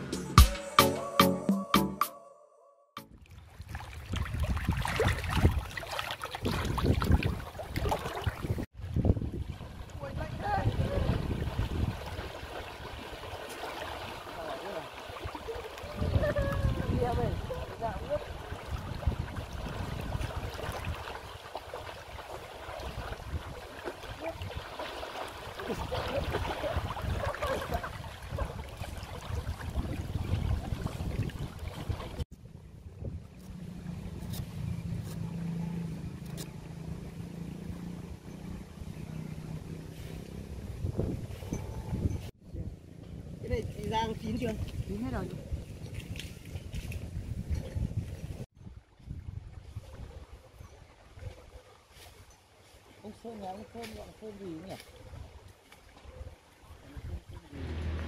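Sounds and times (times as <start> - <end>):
water splashing and rushing: 3.1 - 32.3, 52.5 - 58.0
wind on microphone: 3.9 - 13.3, 15.2 - 24.8, 25.6 - 35.1, 38.4 - 51.6, 54.9 - 58.0.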